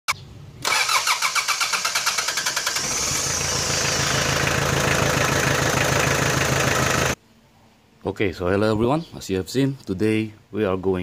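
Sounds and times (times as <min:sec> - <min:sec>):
diesel engine cranking and idling: 0:00.6 - 0:07.2.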